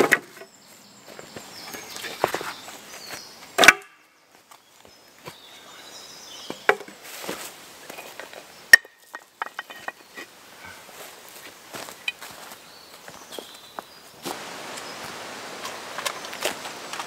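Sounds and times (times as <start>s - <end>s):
dry leaves rustling underfoot: 0.0s - 17.0s
wooden sticks cracking: 3.6s - 4.0s.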